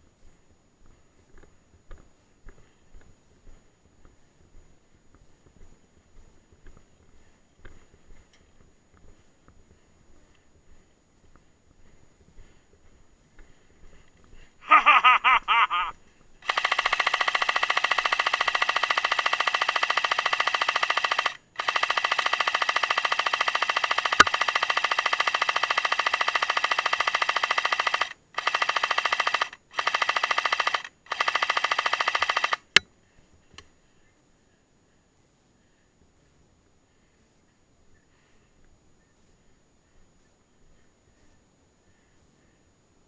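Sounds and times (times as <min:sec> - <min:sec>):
machine gun firing bursts: 0:16.4 - 0:32.8
sharp click: 0:16.5 - 0:26.6.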